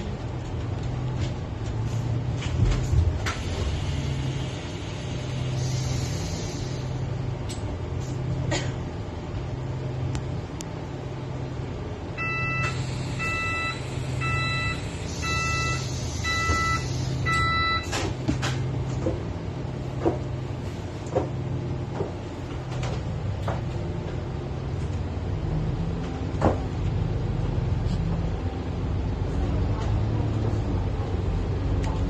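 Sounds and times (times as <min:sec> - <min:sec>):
bus engine humming: 0:00.0 - 0:32.0
electronic warning beeps: 0:12.2 - 0:18.0.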